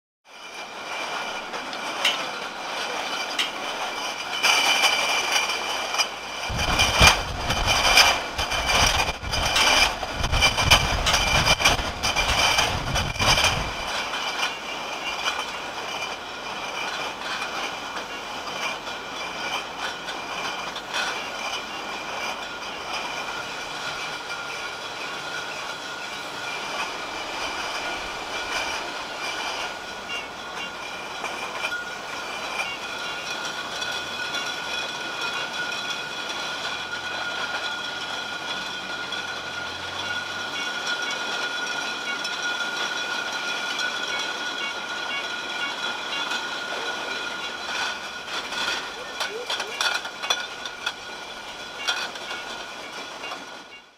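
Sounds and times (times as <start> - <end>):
glass bottles rattling: 0.3 - 53.9
machinery whining: 0.5 - 53.9.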